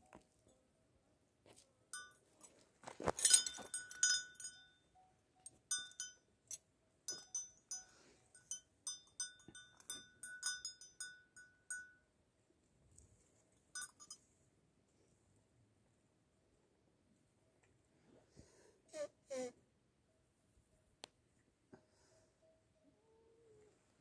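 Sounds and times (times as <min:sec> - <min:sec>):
metal dog chain rattling: 0:02.9 - 0:04.6.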